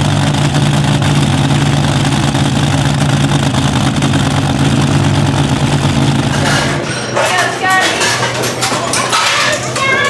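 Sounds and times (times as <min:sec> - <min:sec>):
dragster engine idling loudly: 0:00.0 - 0:06.8.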